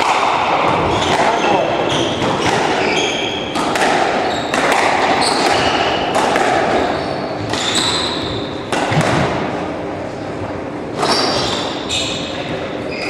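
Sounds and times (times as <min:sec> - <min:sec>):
squash ball smacks: 0:00.0 - 0:01.6, 0:02.2 - 0:02.9, 0:03.5 - 0:08.0, 0:08.6 - 0:09.5
shoes squeaking on wooden floor: 0:00.8 - 0:03.5, 0:04.2 - 0:04.6, 0:05.2 - 0:06.0, 0:06.8 - 0:08.5.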